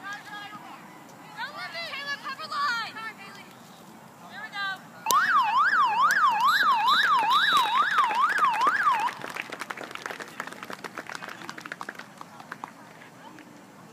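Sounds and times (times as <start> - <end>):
electronic siren wailing: 5.1 - 9.2.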